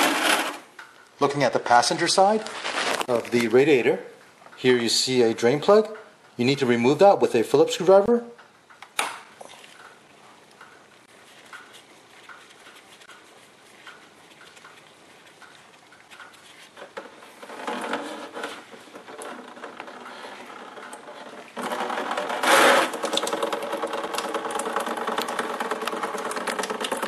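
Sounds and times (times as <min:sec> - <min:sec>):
liquid gushing into pan: 0:17.4 - 0:27.0.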